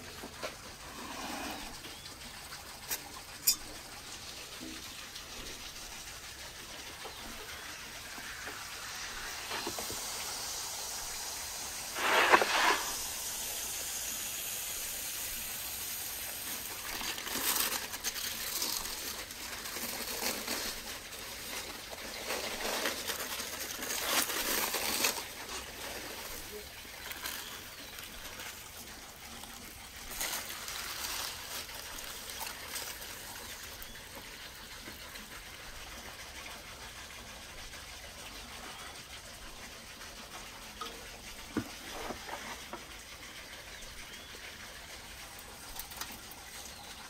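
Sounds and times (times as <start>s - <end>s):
steady hiss: 0.0s - 47.0s
aluminium foil crinkling: 15.6s - 34.4s.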